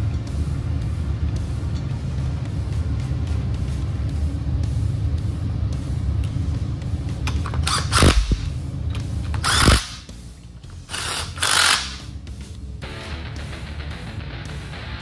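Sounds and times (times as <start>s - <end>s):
power tool fastening bolts: 7.3s - 8.4s, 9.3s - 10.0s, 10.9s - 12.1s.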